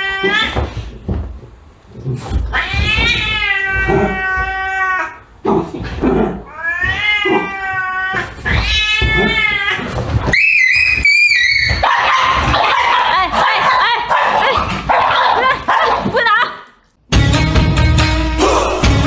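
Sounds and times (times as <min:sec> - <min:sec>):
cat yowling: 0:00.0 - 0:00.7, 0:02.4 - 0:05.2, 0:06.5 - 0:12.9.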